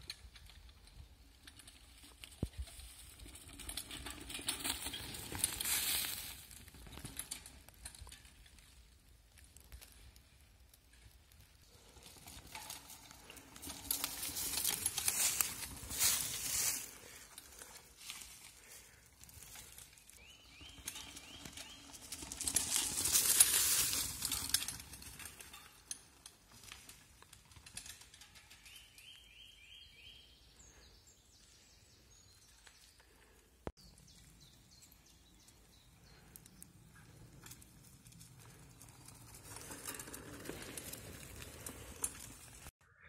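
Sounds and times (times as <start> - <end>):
bike tyres crunching leaves: 1.3 - 30.1, 32.1 - 42.7
birdsong trills: 19.9 - 22.1, 28.4 - 37.2.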